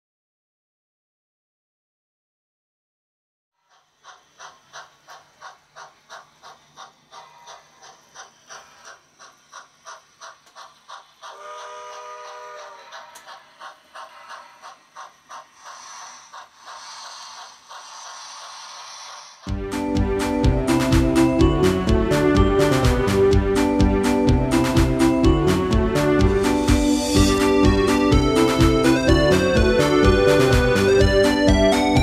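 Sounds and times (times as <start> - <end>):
steam hiss: 3.6 - 19.6, 26.3 - 31.9
model steam locomotive chuffing: 3.6 - 32.0
steam whistle chord: 11.3 - 13.4, 19.5 - 32.0.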